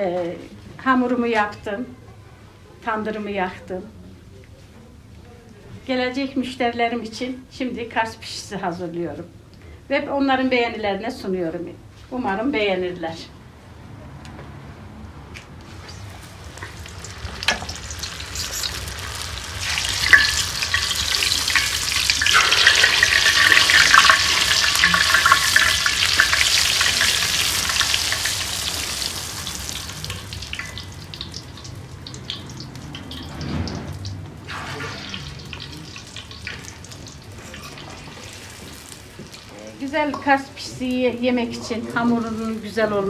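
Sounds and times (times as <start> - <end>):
dough sizzling in hot oil: 15.7 - 40.1.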